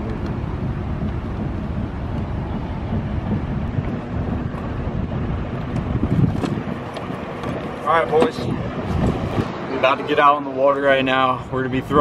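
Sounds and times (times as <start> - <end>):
wind rumble on microphone: 0.0 - 9.7.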